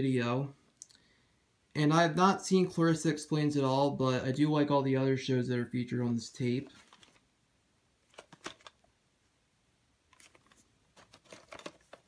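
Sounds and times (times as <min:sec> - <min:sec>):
tape box clicks and rustles: 0:06.7 - 0:07.2, 0:08.0 - 0:08.9, 0:10.1 - 0:12.0.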